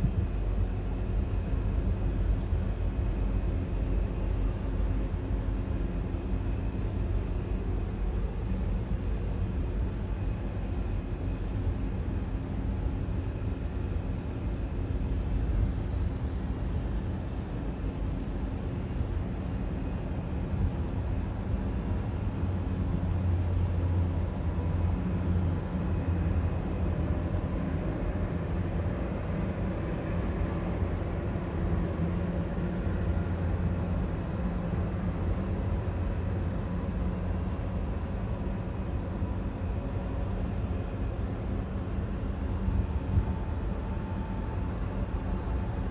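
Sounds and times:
faint high-pitched whine: 0:00.0 - 0:45.9.

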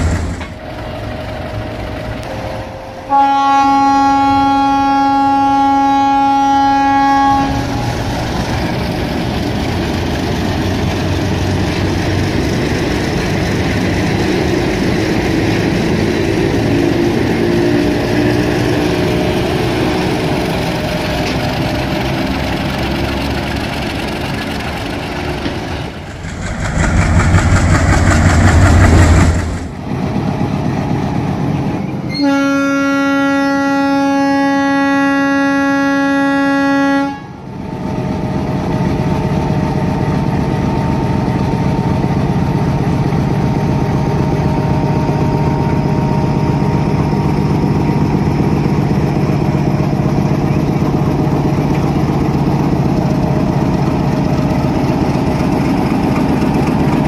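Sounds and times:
train rumbling past: 0:00.0 - 0:57.0
train air horn blast: 0:02.2 - 0:08.1, 0:32.1 - 0:37.4.

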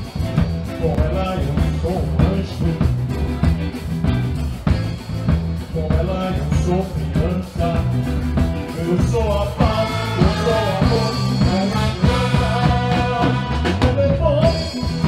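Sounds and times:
drum kit and bass groove: 0:00.0 - 0:15.0
person singing: 0:05.7 - 0:15.0
horn section playing: 0:09.6 - 0:15.0.

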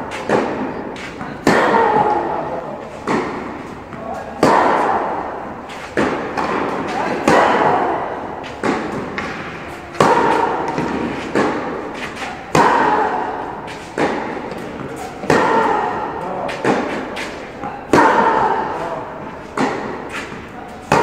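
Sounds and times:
racket striking tennis ball: 0:00.0 - 0:21.0.

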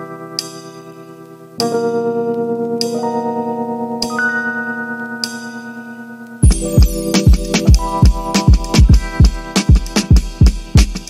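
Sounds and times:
bell-like chime tones: 0:04.1 - 0:08.8
heavy bass-drum beat: 0:06.4 - 0:11.0.

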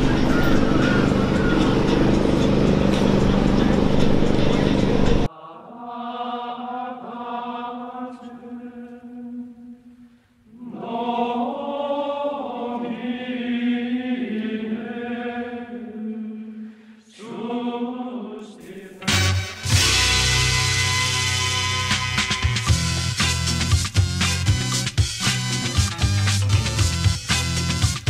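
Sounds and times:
voices chanting low notes: 0:00.0 - 0:05.5.

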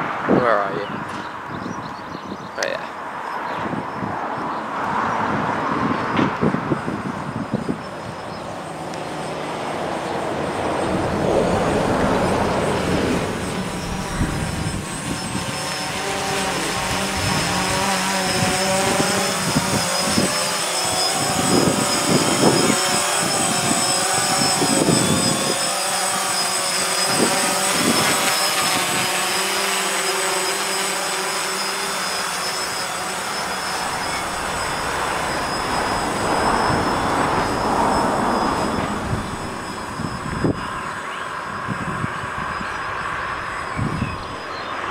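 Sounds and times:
drone propellers whirring: 0:05.4 - 0:44.9.

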